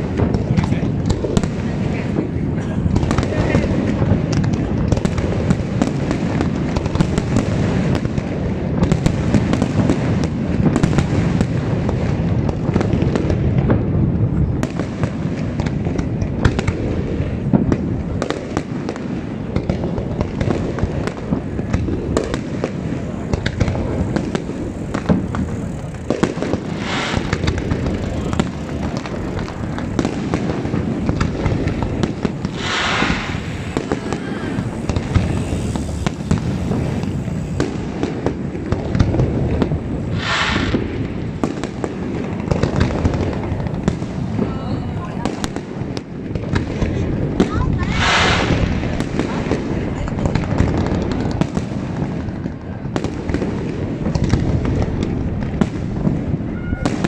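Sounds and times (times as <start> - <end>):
firework hiss: 0.0 - 57.0
fireworks cracks and bangs: 0.0 - 57.0
low rumble: 21.4 - 41.4.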